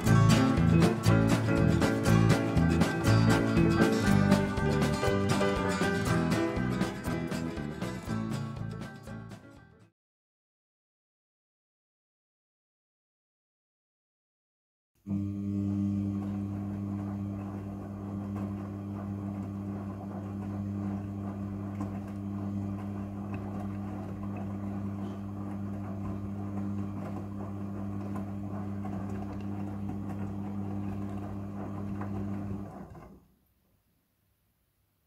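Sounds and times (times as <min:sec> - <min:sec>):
washing machine motor hum: 0:00.0 - 0:09.3, 0:15.0 - 0:33.3.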